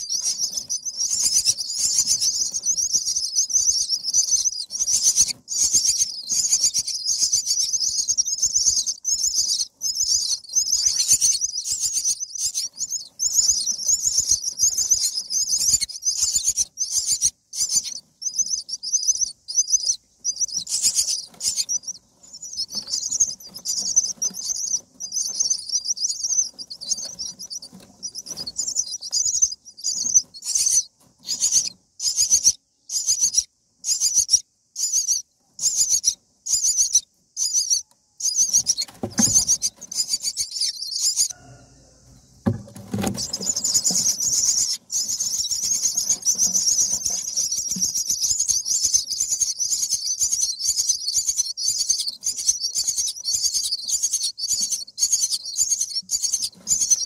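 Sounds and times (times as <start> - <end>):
nestlings begging calls: 0.0 - 57.0
rustling of nest straw: 19.4 - 31.7, 41.3 - 49.5.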